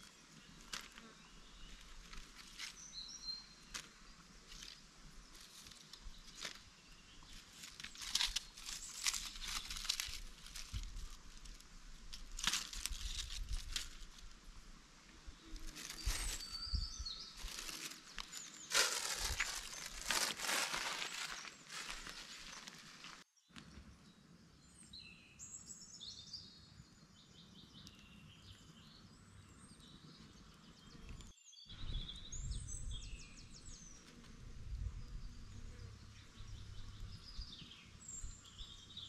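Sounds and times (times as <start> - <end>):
faint bird chirps: 15.2 - 39.0
material crinkling and rustling: 17.4 - 23.2.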